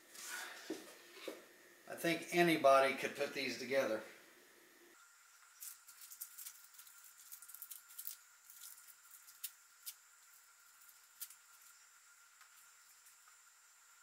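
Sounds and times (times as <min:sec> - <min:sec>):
small hardware crinkling and ticking: 0:05.6 - 0:11.8.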